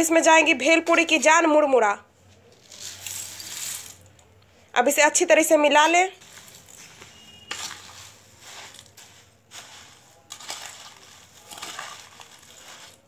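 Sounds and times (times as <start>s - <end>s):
puffed rice stirred in steel bowl: 2.5s - 4.1s, 5.8s - 13.0s.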